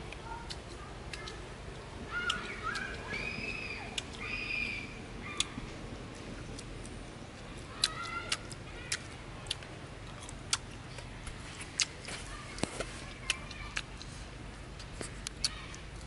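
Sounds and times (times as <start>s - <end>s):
open-mouth chewing: 5.3s - 16.0s.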